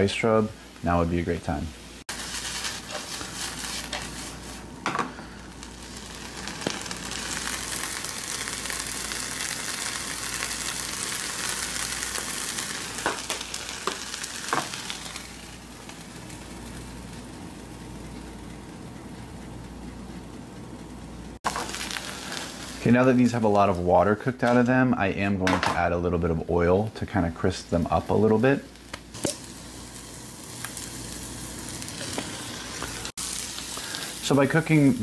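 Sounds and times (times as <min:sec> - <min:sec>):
seeds sizzling in a skillet: 0:01.8 - 0:18.8, 0:21.4 - 0:23.9, 0:27.9 - 0:35.0
seeds tossed in a pan: 0:02.1 - 0:04.7.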